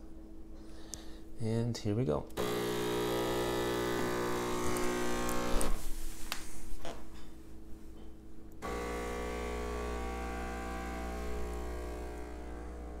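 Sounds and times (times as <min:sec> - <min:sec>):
espresso machine pump buzzing: 0:02.4 - 0:05.9, 0:08.6 - 0:13.0.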